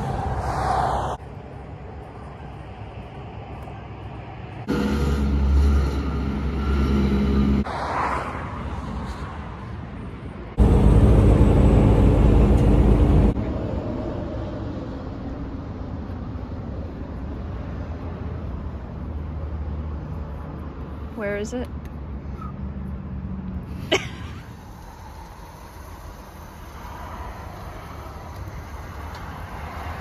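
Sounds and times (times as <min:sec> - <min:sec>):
road noise: 0:00.0 - 0:30.0
diesel lorry engine running: 0:04.5 - 0:07.6, 0:10.6 - 0:13.9.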